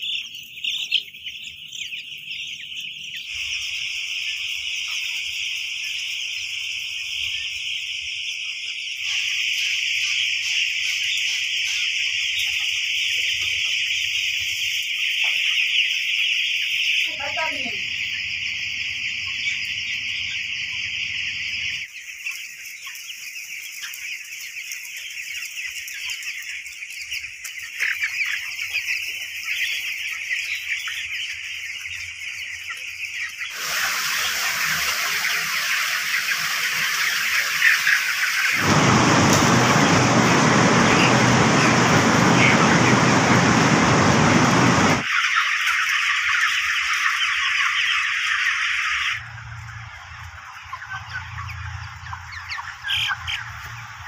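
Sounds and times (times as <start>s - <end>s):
chicks chirping: 0.0s - 54.0s
loud even rushing noise: 38.6s - 45.0s.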